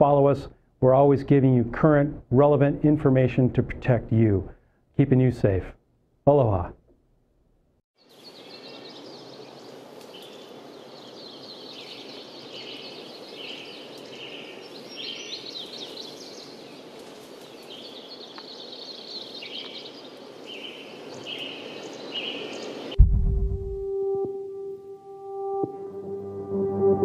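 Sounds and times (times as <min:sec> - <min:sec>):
steady hiss: 0:08.1 - 0:23.0.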